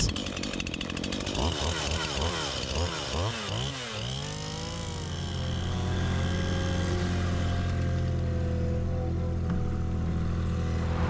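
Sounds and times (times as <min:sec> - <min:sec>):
petrol cutter revving: 0:00.0 - 0:07.6.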